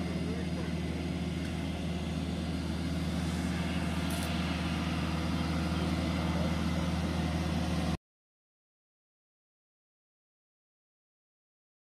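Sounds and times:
heavy engine idling: 0.0 - 8.0.

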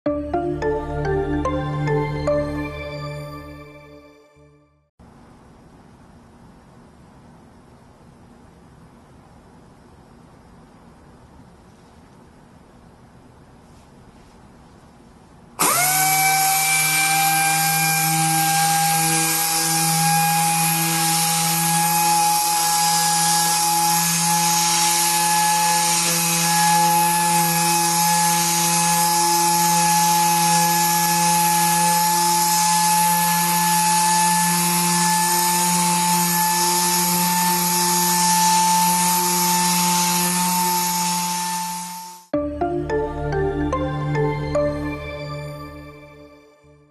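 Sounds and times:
air-powered orbital sander: 15.6 - 42.3.

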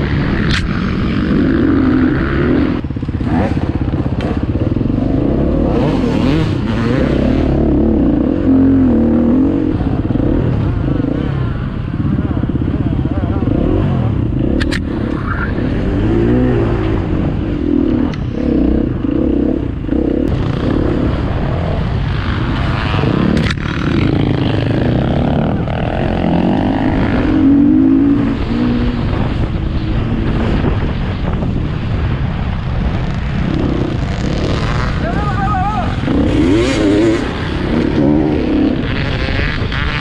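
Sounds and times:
motorcycle engine revving: 0.0 - 40.0.

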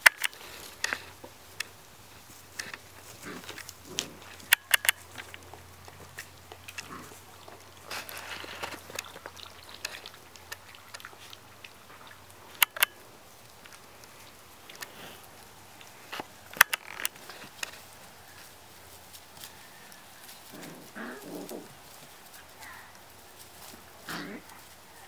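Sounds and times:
sharp clicks: 0.0 - 1.8, 2.5 - 7.0, 12.5 - 13.0, 15.8 - 17.8
puppy snuffling noises: 0.2 - 25.0
puppies lapping water: 5.0 - 16.1.

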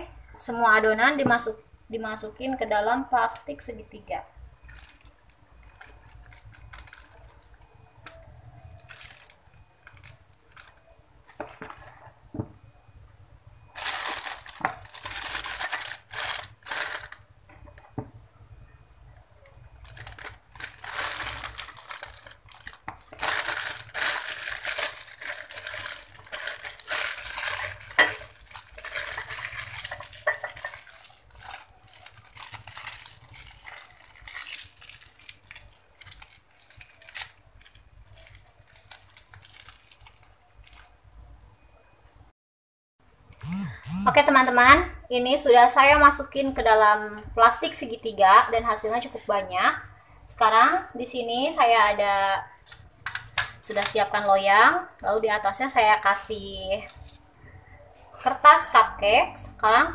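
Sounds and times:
plastic bag crinkling: 4.6 - 12.0, 13.7 - 17.3, 19.5 - 41.0.

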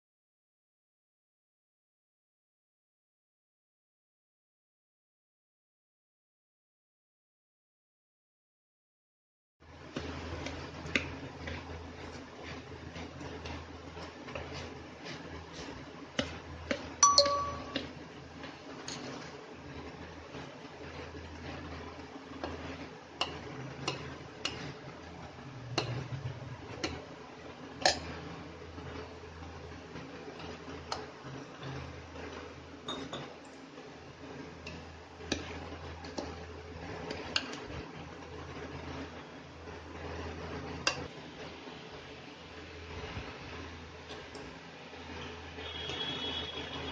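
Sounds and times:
metal clinking in steel bowl: 17.0 - 17.8.

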